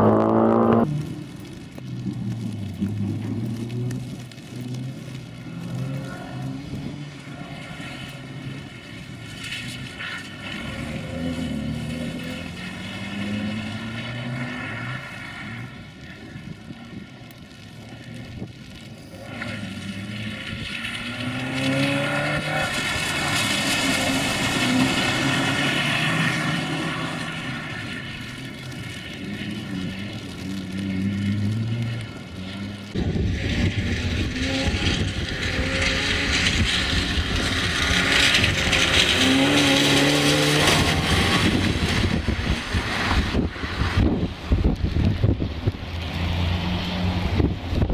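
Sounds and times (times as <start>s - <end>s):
car engine revving: 0.0s - 15.8s, 19.2s - 47.9s.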